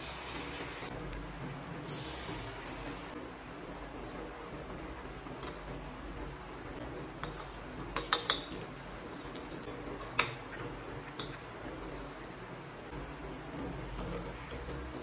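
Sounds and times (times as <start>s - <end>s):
spoon clinking on metal pan: 8.0s - 8.6s.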